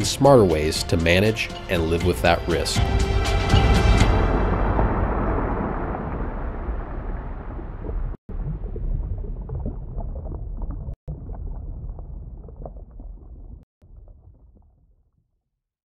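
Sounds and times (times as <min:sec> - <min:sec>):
muffled underwater rumble: 0:04.0 - 0:15.0
bubbles popping: 0:06.8 - 0:14.8.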